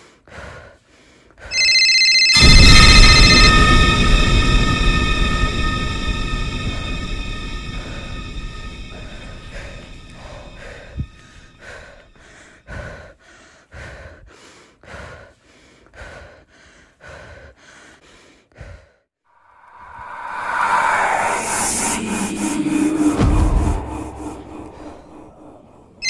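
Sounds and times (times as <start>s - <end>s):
man breathing hard: 0.0s - 1.5s, 9.6s - 19.1s
swell of noise: 2.4s - 12.2s, 19.4s - 26.0s.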